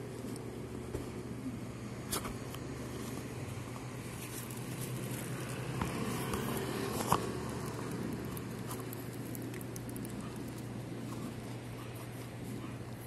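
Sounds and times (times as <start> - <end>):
distant traffic hum: 0.0 - 13.0
cat chewing and crunching: 2.9 - 13.0.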